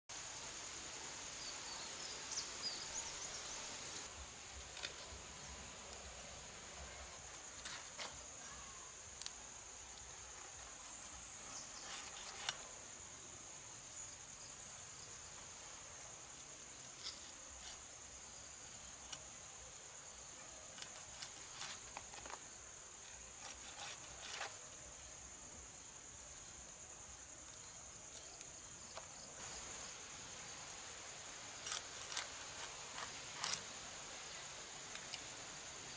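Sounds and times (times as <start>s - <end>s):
insects droning: 0.1s - 35.9s.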